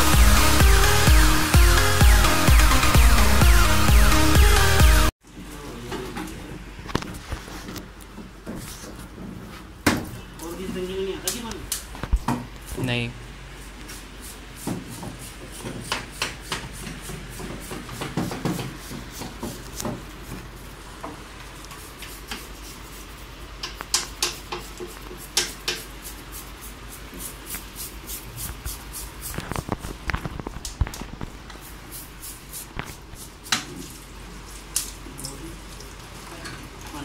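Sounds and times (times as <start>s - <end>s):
hand tool tapping sheet metal: 23.6s - 25.9s.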